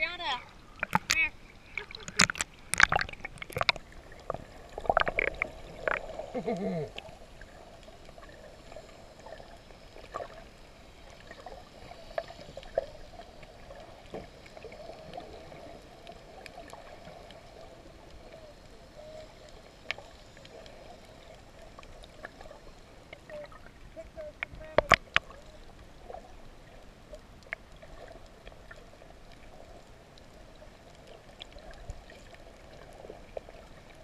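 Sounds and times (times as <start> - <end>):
underwater splashing and bubbling: 0.0 - 34.0
faint clicks: 0.8 - 6.0, 19.4 - 22.5, 23.1 - 26.1.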